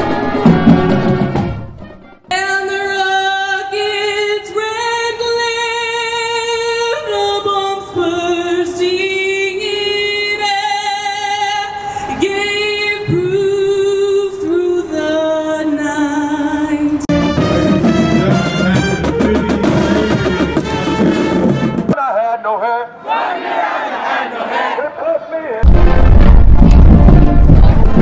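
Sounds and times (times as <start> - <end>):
woman singing: 2.3 - 17.1.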